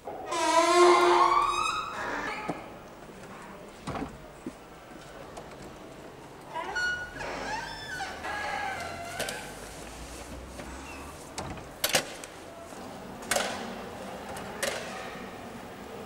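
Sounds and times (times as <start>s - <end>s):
wooden door creaking: 0.0s - 2.8s, 3.8s - 4.4s, 6.5s - 9.6s, 10.6s - 12.1s.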